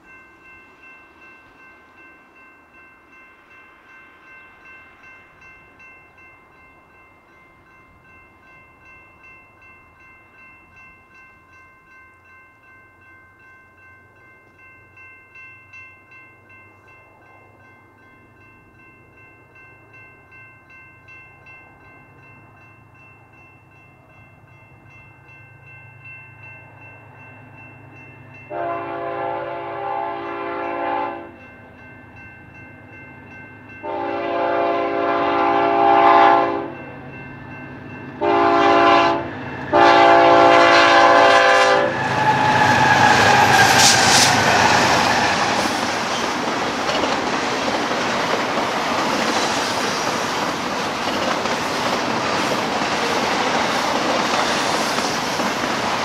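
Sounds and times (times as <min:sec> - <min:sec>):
diesel locomotives rumbling: 0:25.2 - 0:56.0
locomotive air horn: 0:28.5 - 0:31.3, 0:33.8 - 0:36.8, 0:38.2 - 0:45.4.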